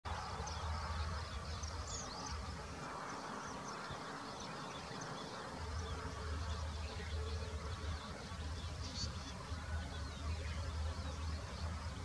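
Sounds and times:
small birds chirping: 0.1s - 12.0s.

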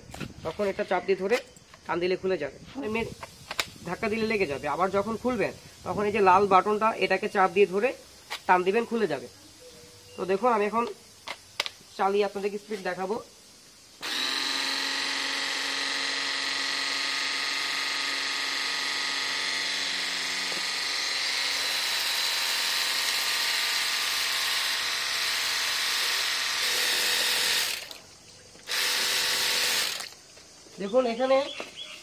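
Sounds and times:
pressure washer motor whine: 14.0s - 28.0s, 28.7s - 30.2s.

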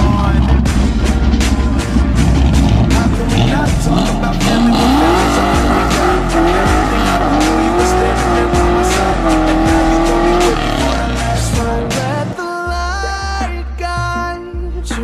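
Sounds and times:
car engine revving hard: 1.4s - 12.4s.

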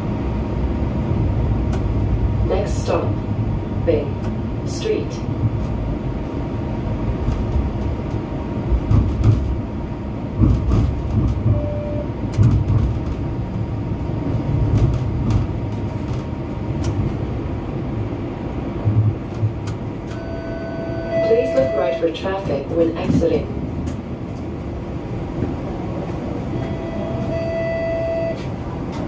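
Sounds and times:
wheels rumbling on rail: 0.0s - 29.0s
track and car body clicks: 12.3s - 13.2s, 19.3s - 20.2s.

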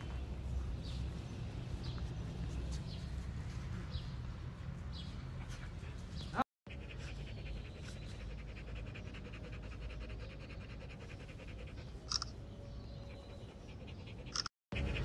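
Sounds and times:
dog panting: 5.1s - 12.2s, 12.9s - 15.0s.

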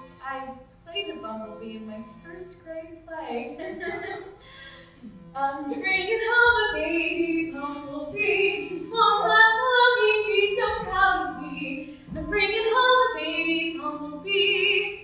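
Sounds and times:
woman singing unaccompanied: 0.2s - 4.0s, 5.1s - 15.0s
woman breathing: 4.4s - 5.3s.

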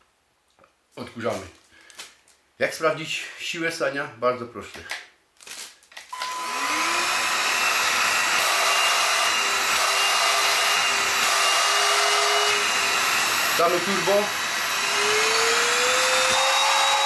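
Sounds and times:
stick vacuum cleaner whining: 6.0s - 17.0s.

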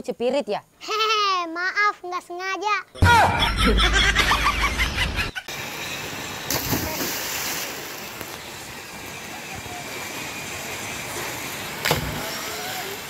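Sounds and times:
rushing river water: 5.6s - 13.0s
splash of child jumping in: 6.5s - 7.8s.

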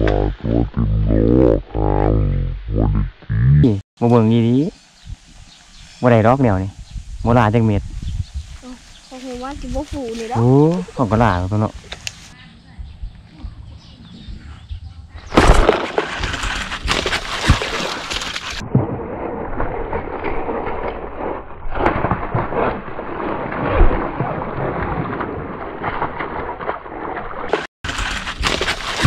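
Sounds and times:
water splashing by thrashing fish: 15.4s - 29.0s.

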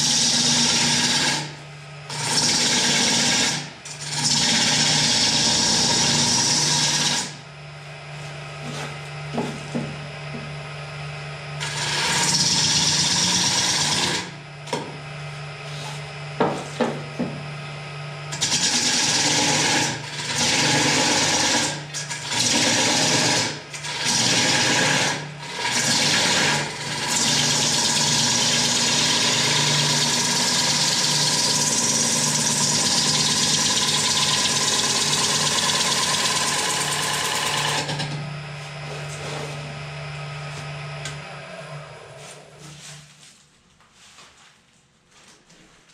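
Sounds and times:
turning tool cutting wood: 0.0s - 7.4s, 11.6s - 14.4s, 18.3s - 38.2s
lathe motor hum: 2.0s - 14.4s, 17.8s - 42.6s.

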